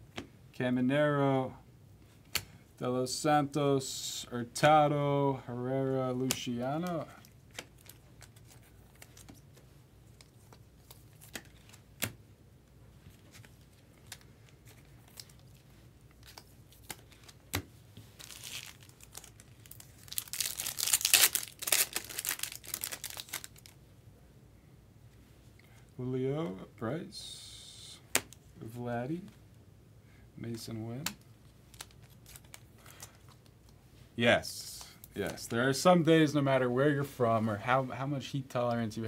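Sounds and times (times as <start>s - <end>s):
foil card pack tearing open: 18.2s - 23.7s.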